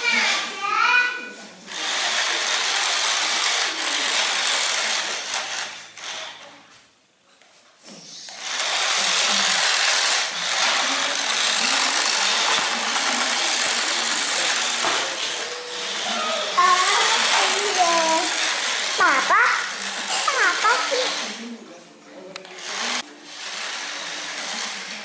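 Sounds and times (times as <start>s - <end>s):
toy car motors whirring: 0.0s - 6.5s, 8.1s - 21.5s, 22.4s - 25.0s
tires skidding on tiled floor: 8.4s - 21.2s.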